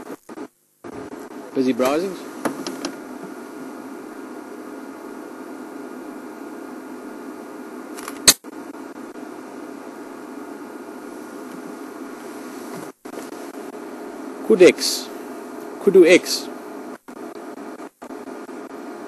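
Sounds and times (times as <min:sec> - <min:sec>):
low background hum: 0:00.0 - 0:19.0
sharp click: 0:08.0 - 0:08.4.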